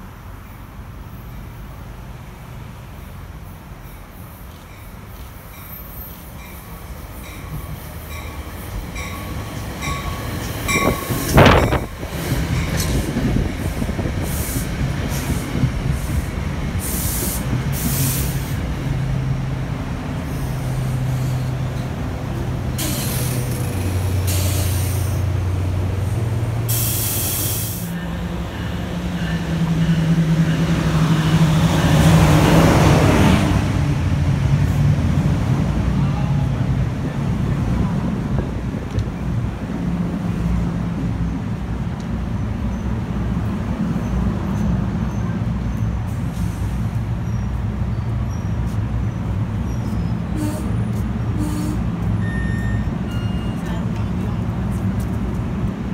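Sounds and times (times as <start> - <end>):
train engine and wheels rumbling: 0.0 - 55.9
train brake hiss: 14.2 - 18.6, 22.8 - 25.3, 26.7 - 28.1, 46.1 - 47.0
wheel squeal: 47.2 - 50.9, 52.2 - 53.6.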